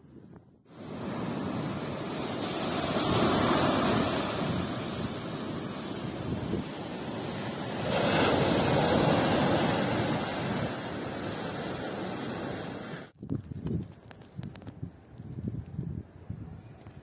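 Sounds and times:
waves on a pebble beach: 0:00.7 - 0:13.1.

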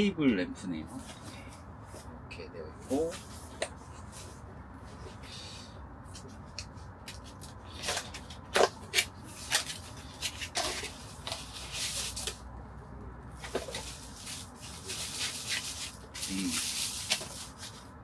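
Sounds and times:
cardboard and plastic rustling: 0:06.1 - 0:12.6, 0:13.3 - 0:18.0.

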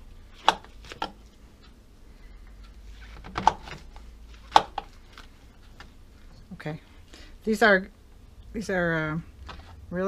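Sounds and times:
mushrooms knocking on plastic board: 0:04.5 - 0:04.9.

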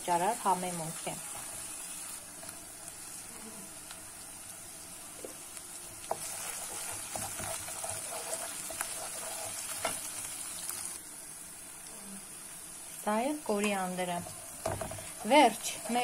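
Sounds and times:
onions sizzling in oil: 0:00.0 - 0:16.0
wooden spatula knocking pan: 0:14.6 - 0:16.0.

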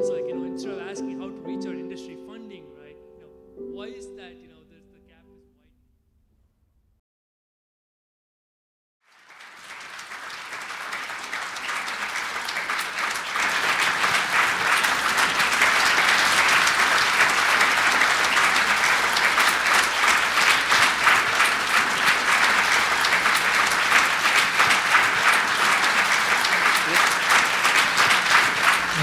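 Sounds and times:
audience applause: 0:09.1 - 0:29.0.

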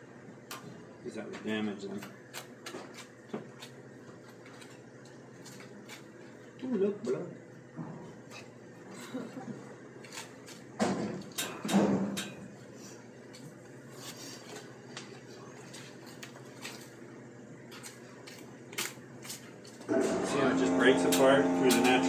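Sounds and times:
small clicks and scrapes: 0:02.0 - 0:06.1.

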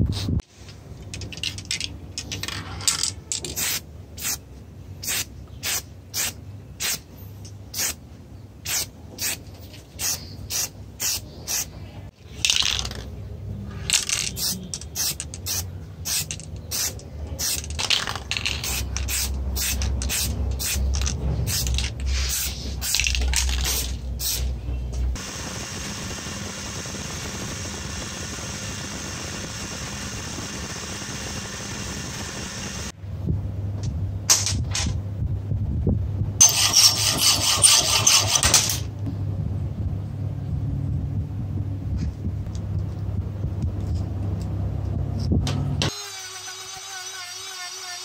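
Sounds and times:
spray paint can hissing bursts: 0:03.6 - 0:04.4, 0:05.0 - 0:07.1, 0:07.7 - 0:08.0, 0:08.6 - 0:09.4, 0:10.0 - 0:11.7, 0:13.9 - 0:24.5.

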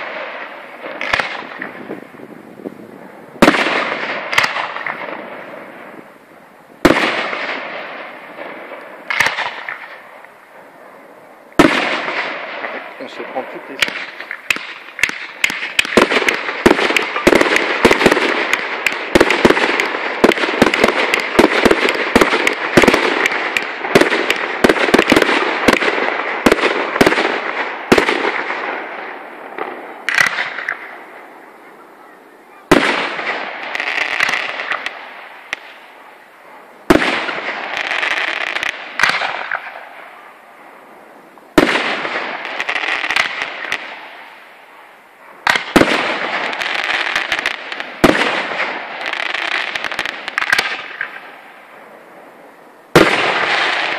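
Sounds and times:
sharp firework bangs: 0:00.0 - 0:02.2, 0:03.4 - 0:06.0, 0:06.8 - 0:10.1, 0:11.6 - 0:31.0, 0:32.7 - 0:36.2, 0:36.8 - 0:40.2, 0:41.5 - 0:44.4, 0:45.4 - 0:51.4, 0:52.9 - 0:53.9
firework crackling: 0:00.0 - 0:53.9
firework shells bursting: 0:06.8 - 0:10.4, 0:11.6 - 0:31.0.

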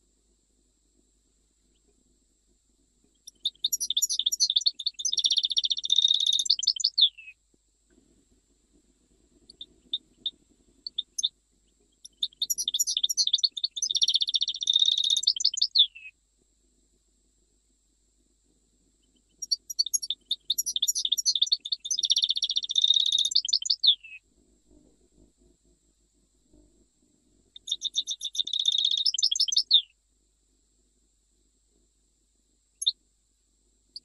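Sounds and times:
goldfinch twittering and trilling: 0:03.3 - 0:07.0, 0:12.1 - 0:15.9, 0:19.4 - 0:24.0, 0:27.6 - 0:29.8.

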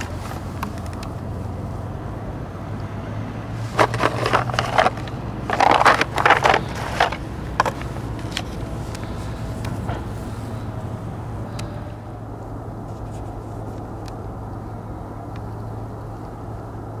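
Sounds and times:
cardboard box scraping and rustling: 0:03.6 - 0:09.2.

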